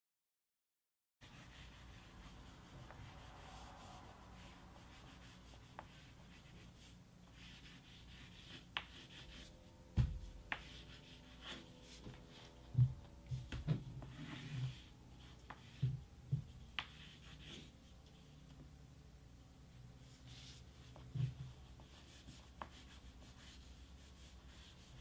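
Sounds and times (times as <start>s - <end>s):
graphite scratching on paper: 1.2s - 9.6s, 10.5s - 12.4s, 14.0s - 17.8s, 20.0s - 25.0s
heavy thump: 9.9s - 10.4s.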